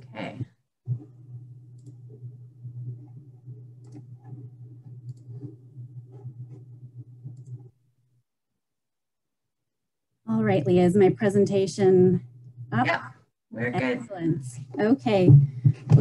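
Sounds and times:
steady low hum: 0.0s - 7.8s, 10.3s - 16.0s
computer mouse clicks: 1.7s - 2.1s, 3.8s - 6.6s, 7.3s - 7.7s.

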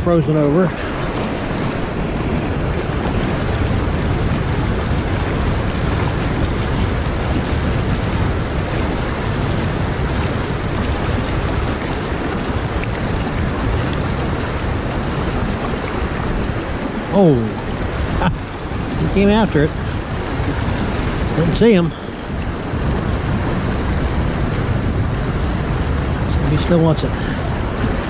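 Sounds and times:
water rushing over spillway: 0.0s - 28.0s.

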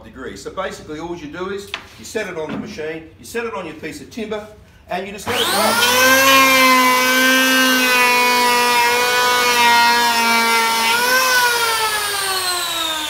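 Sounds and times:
electric planer motor whining: 5.2s - 13.0s.

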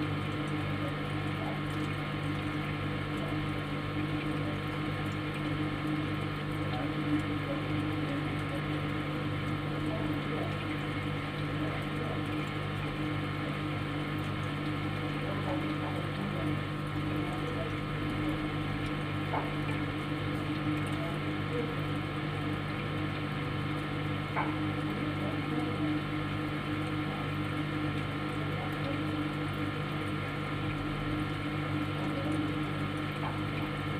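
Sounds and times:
refrigerator hum: 0.0s - 33.9s.

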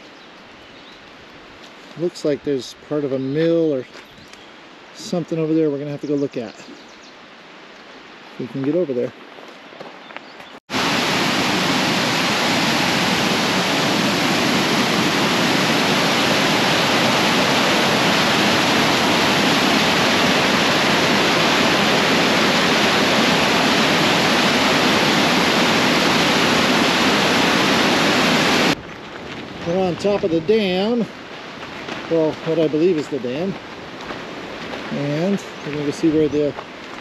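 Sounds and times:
creek rushing over rocks: 10.7s - 28.8s, 29.5s - 37.0s.

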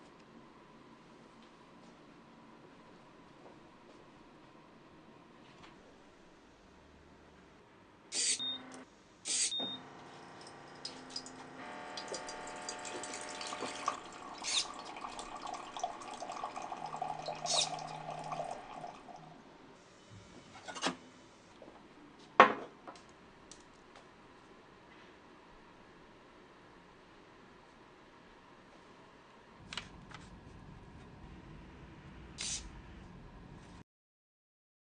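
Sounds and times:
water running from dispenser: 10.0s - 19.3s.

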